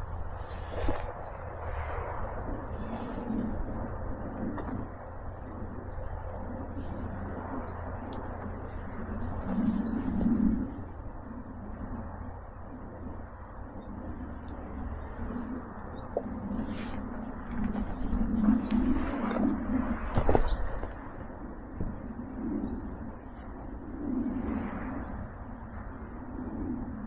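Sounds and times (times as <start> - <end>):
steady low rumble: 0.0 - 27.0
woodland birds chirping: 4.4 - 19.4.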